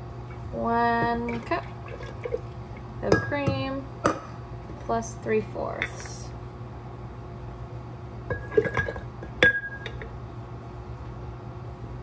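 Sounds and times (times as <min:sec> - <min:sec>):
glass jars clinking: 0:08.3 - 0:10.1.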